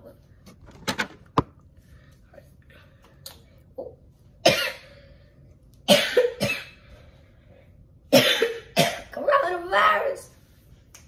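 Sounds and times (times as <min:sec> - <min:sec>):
person coughing: 0:04.4 - 0:05.0, 0:05.9 - 0:06.8, 0:08.1 - 0:09.2.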